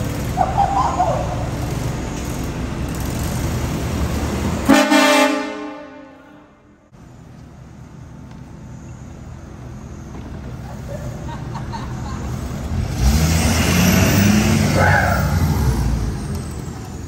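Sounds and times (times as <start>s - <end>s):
vehicle horn blast: 4.7s - 6.6s.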